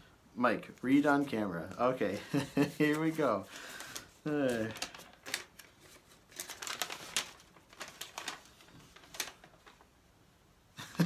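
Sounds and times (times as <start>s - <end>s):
paper crackling: 0.9s - 10.0s.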